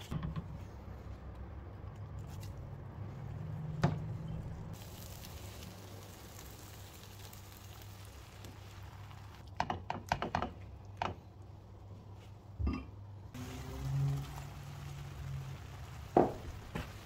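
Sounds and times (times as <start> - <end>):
faint sizzle: 4.2 - 9.5, 13.3 - 17.0.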